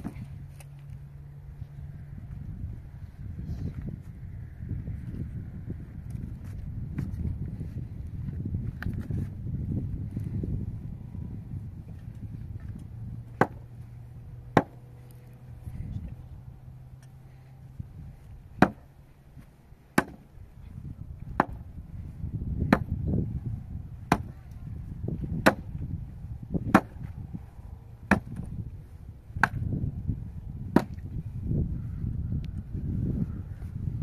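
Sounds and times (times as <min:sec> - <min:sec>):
axe chopping wood: 0:13.3 - 0:13.7, 0:14.5 - 0:14.8, 0:18.6 - 0:18.9, 0:19.9 - 0:20.3, 0:21.3 - 0:21.6, 0:22.6 - 0:23.0, 0:24.0 - 0:24.4, 0:25.3 - 0:25.8, 0:26.6 - 0:27.1, 0:28.1 - 0:28.5, 0:29.4 - 0:29.7, 0:30.7 - 0:31.1.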